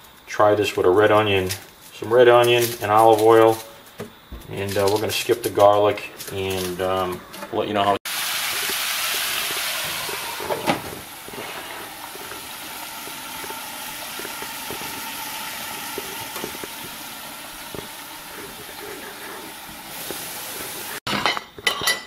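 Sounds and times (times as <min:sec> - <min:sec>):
food sizzling in oil: 0:08.0 - 0:21.1
glass lid clinking on pan: 0:21.1 - 0:22.0.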